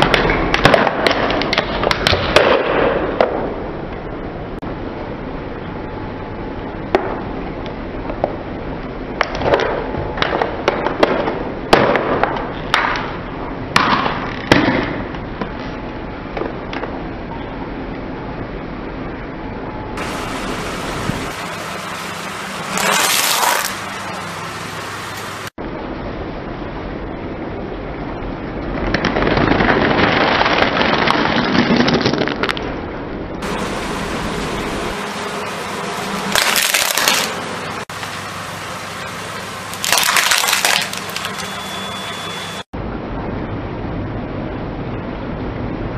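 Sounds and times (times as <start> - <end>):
snack bag crunching: 36.4 - 37.3, 39.8 - 41.4.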